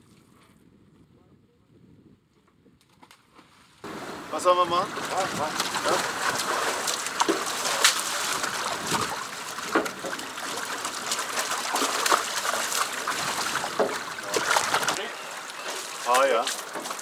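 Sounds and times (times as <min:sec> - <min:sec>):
fish splashing: 0:03.8 - 0:17.0
landing net splashing water: 0:03.8 - 0:17.0
water trickling: 0:03.8 - 0:17.0.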